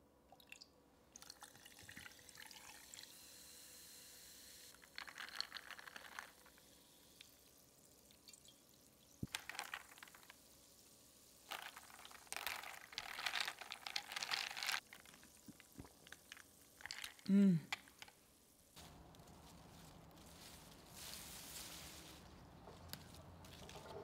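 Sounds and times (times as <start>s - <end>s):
juice pouring into glass of ice: 0.3s - 3.2s, 4.7s - 18.0s
ice clinking: 1.2s - 3.1s, 4.7s - 7.5s, 9.2s - 10.4s, 11.4s - 18.1s
liquid and ice moving in glass: 4.8s - 7.4s, 9.2s - 10.5s, 11.4s - 18.1s.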